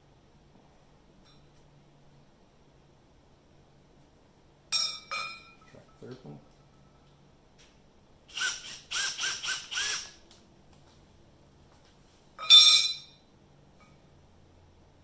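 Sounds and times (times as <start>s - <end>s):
power drill driving a screw: 8.3s - 10.2s.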